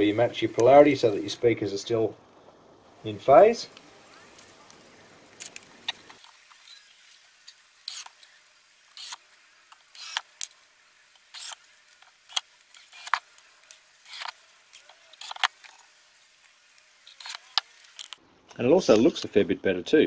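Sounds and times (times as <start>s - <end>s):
screws and screwdriver clicking: 7.9s - 8.1s, 10.0s - 10.5s, 11.4s - 11.6s, 12.3s - 13.2s, 14.1s - 15.5s.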